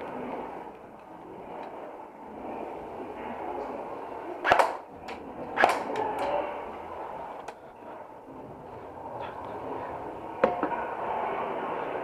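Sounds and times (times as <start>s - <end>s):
low background noise: 0.0s - 12.0s
airsoft gun snaps: 4.5s - 6.0s.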